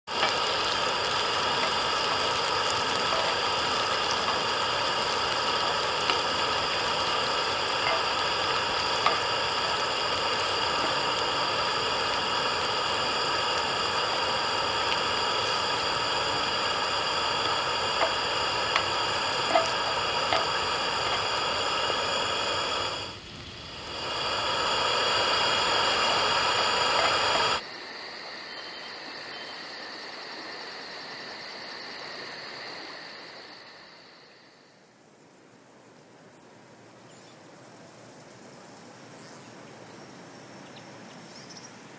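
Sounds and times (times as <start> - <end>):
meat sizzling in a pan: 0.1 - 27.6.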